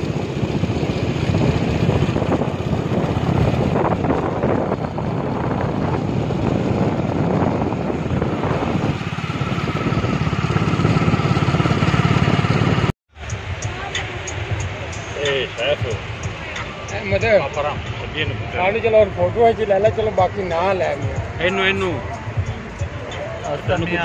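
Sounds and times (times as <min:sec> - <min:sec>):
motorcycle engine running: 0:00.0 - 0:24.0
wind noise on microphone: 0:00.0 - 0:24.0.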